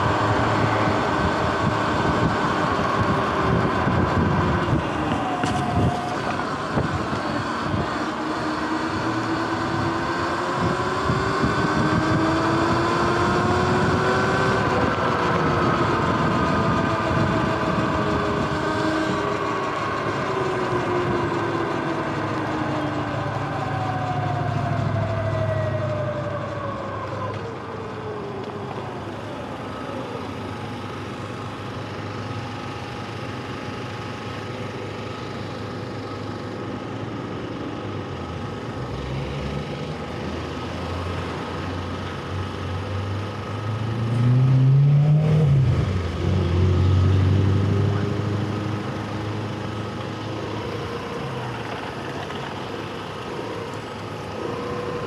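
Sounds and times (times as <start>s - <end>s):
electric motorbike motor whine: 0.0s - 55.0s
road and traffic noise: 0.0s - 55.0s
wind on microphone: 0.7s - 8.0s, 10.6s - 19.3s.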